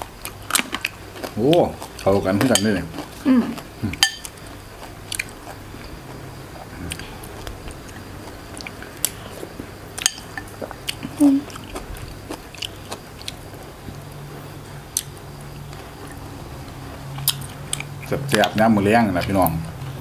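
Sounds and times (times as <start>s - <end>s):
chewing and biting: 0.0s - 14.0s, 17.1s - 18.5s.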